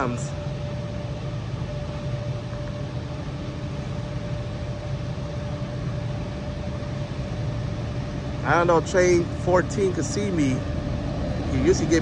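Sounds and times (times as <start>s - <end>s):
faint steady whine: 0.0s - 12.0s
distant traffic rumble: 6.9s - 12.0s.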